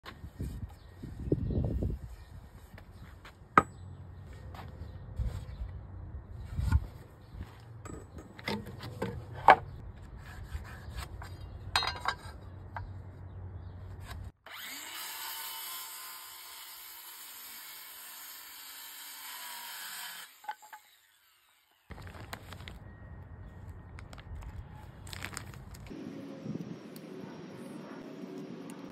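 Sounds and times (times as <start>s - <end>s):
circular saw cutting plywood: 14.4s - 21.9s.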